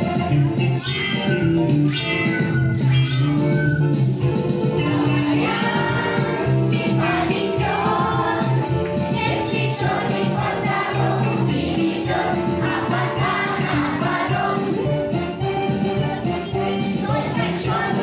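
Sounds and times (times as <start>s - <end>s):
toy shakers and tambourines rattling: 0.2s - 6.7s
group singing over a beat: 4.7s - 18.0s.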